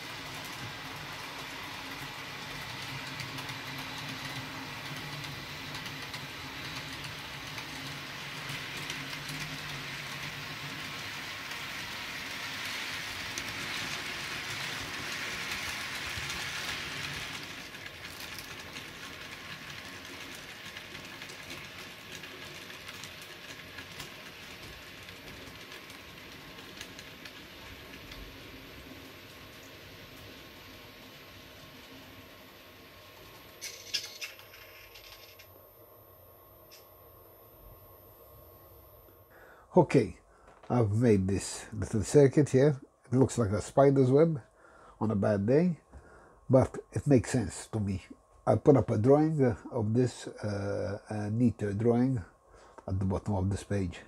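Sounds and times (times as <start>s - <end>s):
model train whirring on rails: 0.0s - 35.5s.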